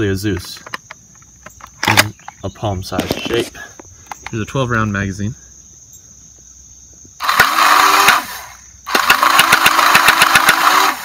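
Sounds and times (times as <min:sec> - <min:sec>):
insects trilling: 0:00.0 - 0:11.0
flywheel motors whining: 0:07.2 - 0:11.0
toy blaster pusher clattering: 0:07.2 - 0:11.0.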